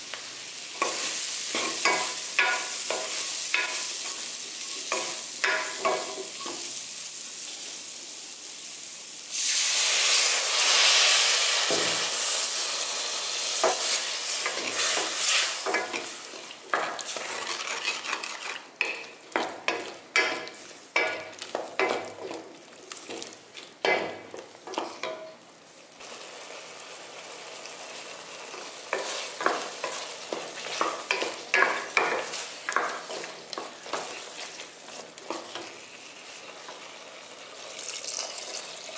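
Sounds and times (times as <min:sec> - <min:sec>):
vegetables sizzling in a pot: 0:00.0 - 0:38.9
liquid hissing on hot pan: 0:04.7 - 0:18.7
spatula scraping through gravy: 0:16.8 - 0:19.0.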